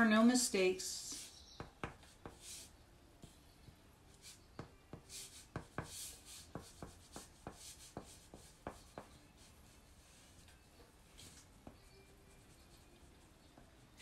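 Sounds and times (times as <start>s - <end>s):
pastel rubbing on paper: 5.0s - 10.4s.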